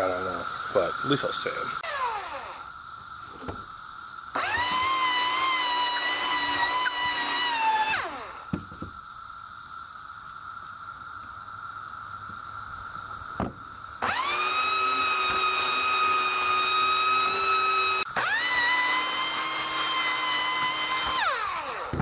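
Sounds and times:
belt sander whining: 1.5s - 2.7s, 4.3s - 8.9s, 14.0s - 22.0s.

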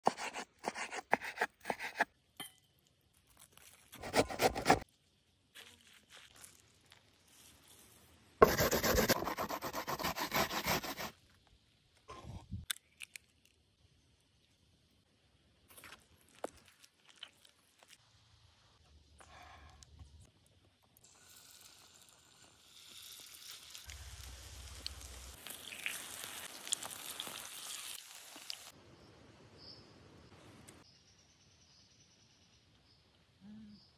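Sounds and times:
knife chopping on wooden board: 4.0s - 4.8s
rubbing and scraping: 4.0s - 4.8s, 8.4s - 11.1s
fritters sizzling in hot oil: 21.1s - 28.8s.

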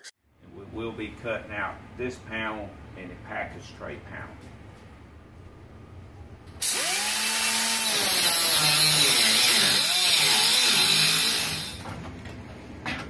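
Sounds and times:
pneumatic cut-off tool cutting metal: 6.6s - 11.8s.

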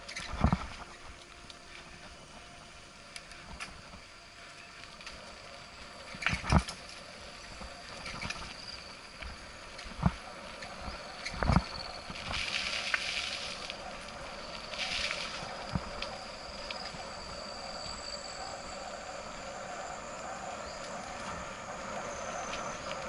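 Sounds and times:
bike tyres rolling on gravel: 0.0s - 23.0s.

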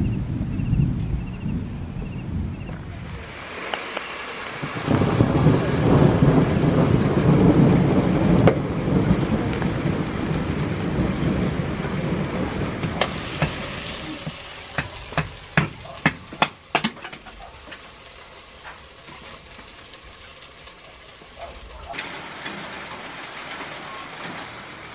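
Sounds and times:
water pouring into a pot: 13.0s - 22.5s.

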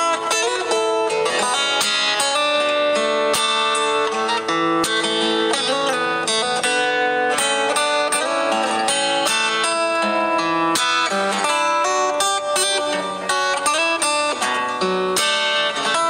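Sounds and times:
instrumental guitar music: 0.0s - 16.0s.

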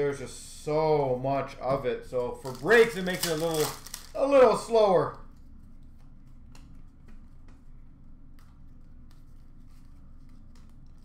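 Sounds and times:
trading cards clicking: 2.4s - 4.5s.

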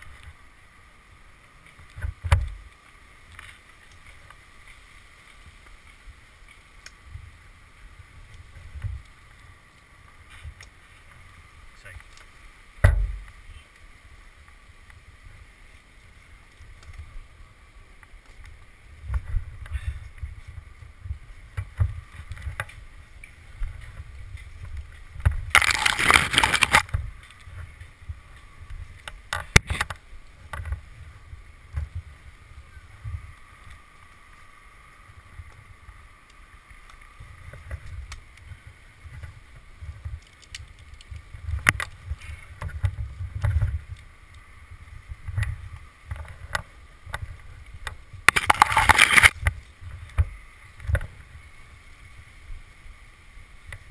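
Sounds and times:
wind rumble: 0.0s - 53.9s
thump: 12.8s - 13.2s
microphone handling noise: 25.2s - 27.2s, 48.2s - 50.3s.

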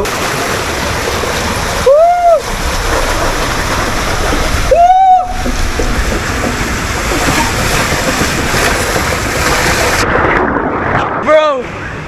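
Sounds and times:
water rushing in slide tube: 0.0s - 11.8s
man yelling: 4.7s - 5.3s.

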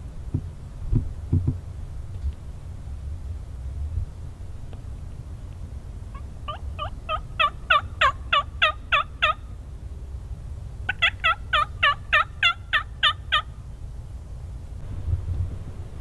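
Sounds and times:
turkey yelps: 6.1s - 9.5s, 10.9s - 13.5s.

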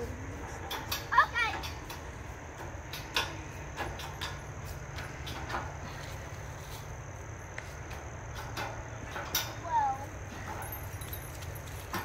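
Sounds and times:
low outdoor rumble: 0.0s - 12.0s
light knocks and rustles: 10.3s - 12.0s.

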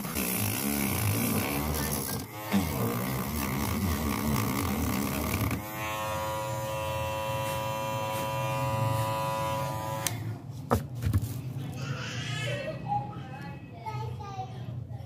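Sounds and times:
electric rotary tool buzzing: 0.0s - 10.2s.

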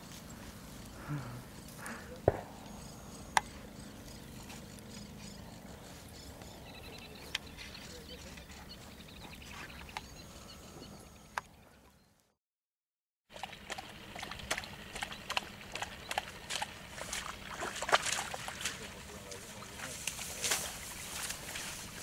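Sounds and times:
low steady hum: 0.0s - 11.8s
faint high chirping: 0.7s - 11.4s
sharp clicks: 1.8s - 4.4s.

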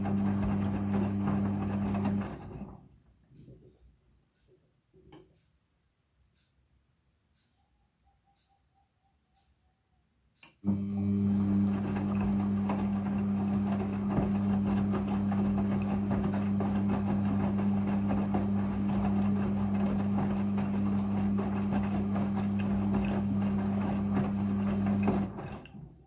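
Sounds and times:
washing machine motor hum: 0.0s - 2.8s, 10.6s - 26.0s
wet laundry tumbling in drum: 0.0s - 2.8s, 10.7s - 26.0s.

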